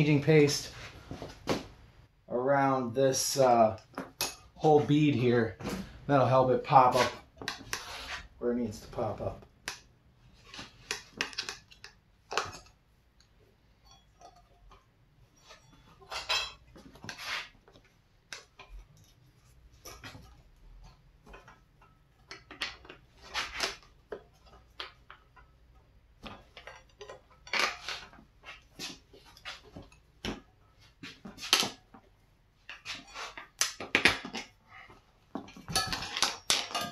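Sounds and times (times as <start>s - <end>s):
tire irons clinking on metal rim: 35.4s - 36.9s.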